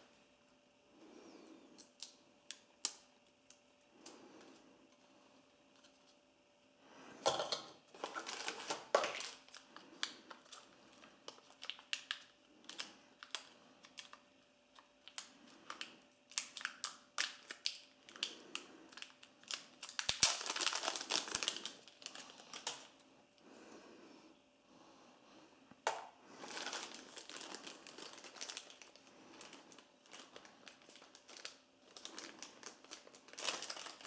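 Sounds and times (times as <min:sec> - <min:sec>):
plastic wrapping crinkling: 0:07.2 - 0:23.0, 0:25.9 - 0:34.0.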